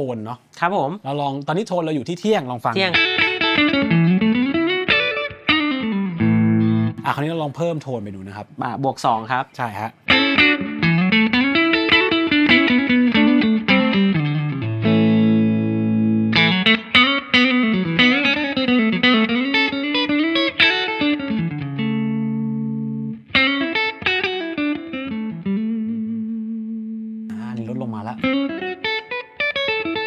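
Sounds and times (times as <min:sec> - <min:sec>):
electric guitar runs and chords: 0:02.9 - 0:07.0, 0:10.1 - 0:27.3, 0:28.2 - 0:30.0.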